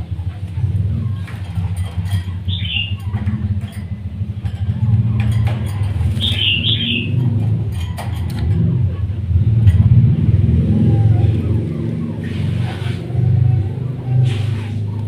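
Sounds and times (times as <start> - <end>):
vehicle engine rumble: 0.0 - 15.0
bird chirps: 2.4 - 3.2, 6.1 - 7.2.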